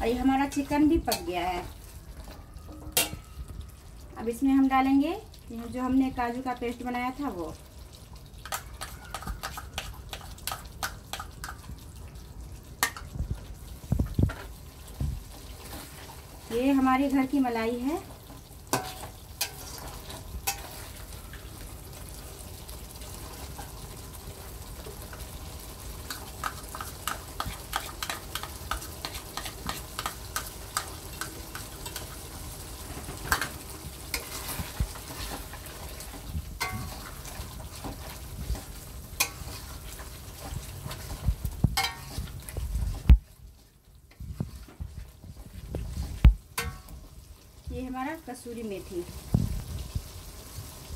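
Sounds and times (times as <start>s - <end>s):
gravy sizzling: 0.0s - 50.9s
spoon scraping a metal pan: 18.7s - 21.0s, 26.1s - 32.2s, 36.6s - 38.0s, 39.2s - 40.0s, 41.8s - 42.3s.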